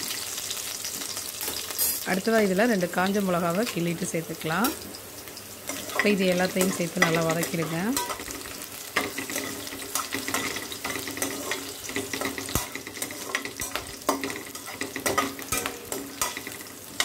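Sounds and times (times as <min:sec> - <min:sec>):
spices sizzling in hot oil: 0:00.0 - 0:17.0
spatula scraping and tapping a pan: 0:05.7 - 0:17.0.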